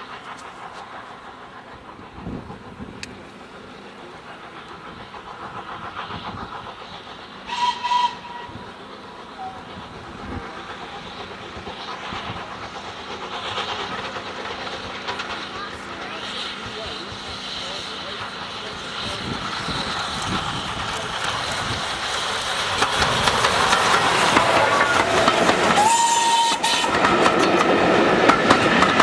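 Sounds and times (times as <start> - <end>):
steam locomotive exhaust beat: 0.0 - 29.0
steam locomotive whistle: 7.5 - 8.6, 24.6 - 27.2.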